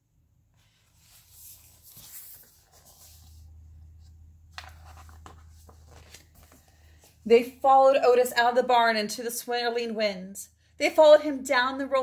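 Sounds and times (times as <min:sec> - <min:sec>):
book pages rustling: 0:00.5 - 0:07.2.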